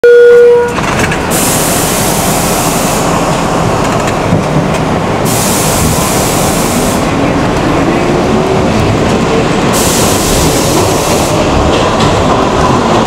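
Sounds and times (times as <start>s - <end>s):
subway car rumbling: 0.0s - 13.0s
strong hiss: 1.3s - 3.2s, 5.2s - 7.2s, 9.7s - 11.6s.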